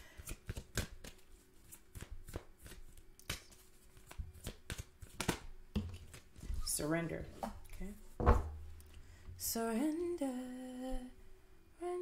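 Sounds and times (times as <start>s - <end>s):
cards being shuffled: 0.2s - 6.8s.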